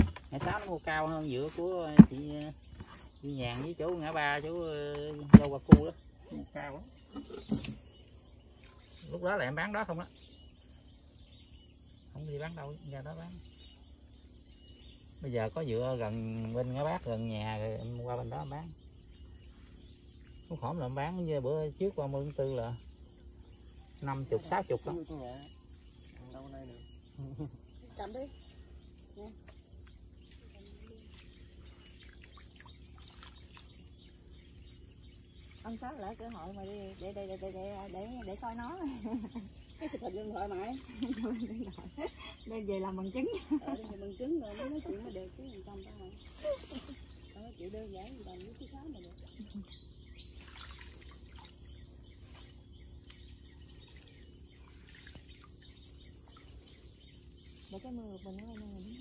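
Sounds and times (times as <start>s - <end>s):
crickets chirping: 0.0s - 59.0s
high insect trill: 0.0s - 59.0s
grass rustling in water: 30.3s - 34.3s, 35.4s - 42.0s, 50.3s - 57.9s
wet grass rustling: 30.7s - 34.0s, 50.3s - 53.2s.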